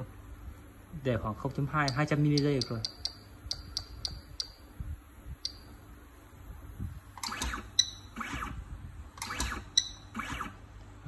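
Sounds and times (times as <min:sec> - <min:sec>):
stepper motor driving: 0:07.2 - 0:10.6
sharp welding click: 0:09.2 - 0:10.5.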